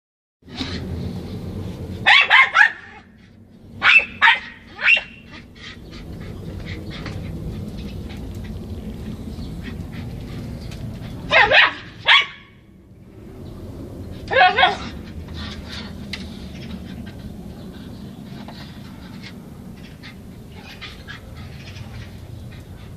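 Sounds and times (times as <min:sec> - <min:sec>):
small dog barking: 0:02.0 - 0:03.1, 0:03.8 - 0:05.3, 0:11.3 - 0:12.6, 0:14.3 - 0:15.0.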